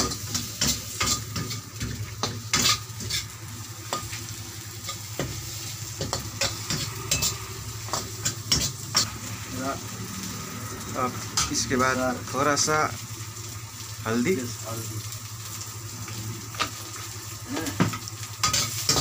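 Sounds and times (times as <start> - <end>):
onions and potatoes sizzling in oil: 0.0 - 19.0
metal spatula scraping a wok: 0.3 - 3.3, 6.0 - 9.4.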